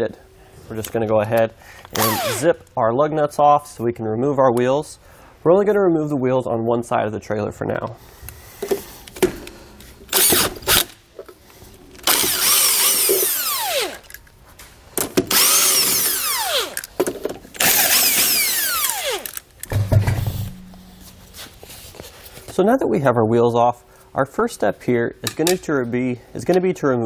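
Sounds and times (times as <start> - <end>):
impact wrench spinning: 1.9 - 2.5, 10.1 - 11.0, 12.0 - 14.2, 15.3 - 17.0, 17.6 - 21.2
low thump: 19.7 - 21.4.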